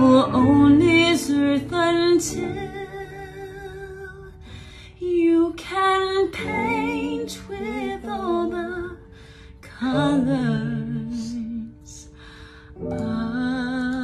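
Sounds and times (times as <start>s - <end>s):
woman singing: 0.0s - 4.4s, 5.0s - 12.2s, 12.9s - 14.0s.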